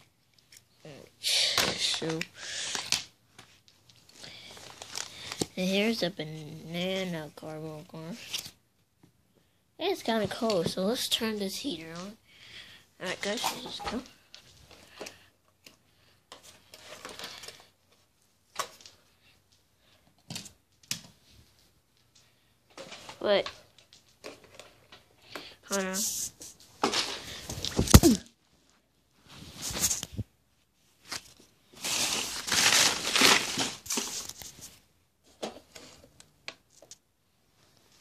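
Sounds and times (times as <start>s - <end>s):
rustling and scraping handling noise: 13.0s - 38.0s.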